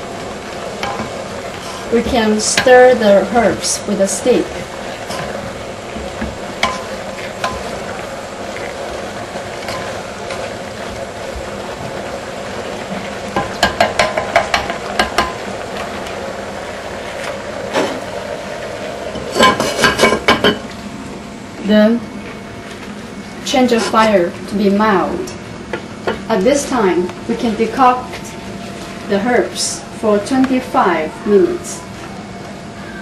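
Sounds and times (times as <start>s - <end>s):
stick stirring boiling herbs: 0.0s - 18.0s.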